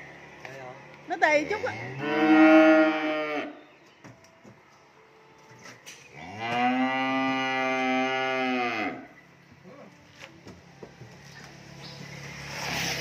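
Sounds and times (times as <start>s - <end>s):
cow mooing: 1.4s - 3.6s, 6.1s - 9.2s.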